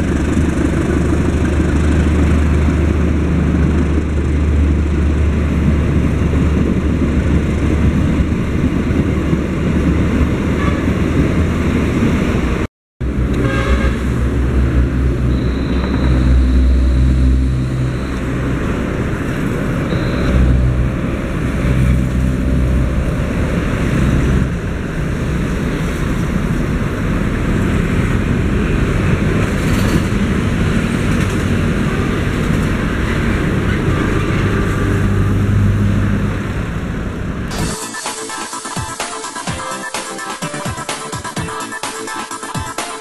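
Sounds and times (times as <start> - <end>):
motorcycles and cars passing: 0.0 - 37.5.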